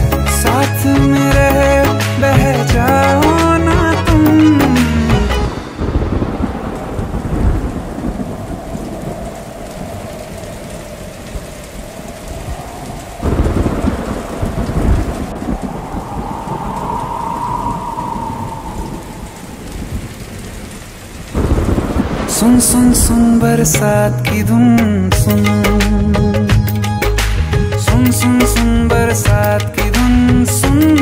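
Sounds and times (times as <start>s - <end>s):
heavy rain: 0.0s - 31.0s
low rolling thunder: 5.2s - 26.4s.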